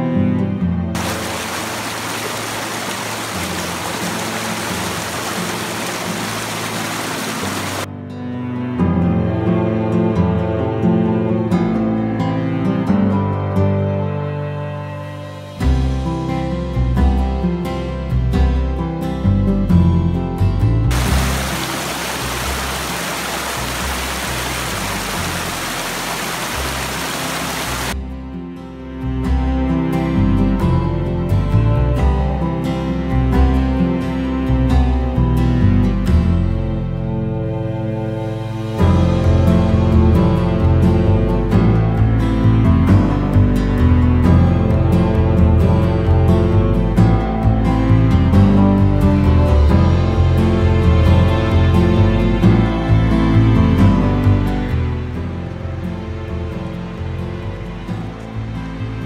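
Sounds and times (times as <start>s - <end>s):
creek water rushing over rocks: 1.0s - 7.9s, 20.9s - 28.0s
low music tones: 20.7s - 28.1s.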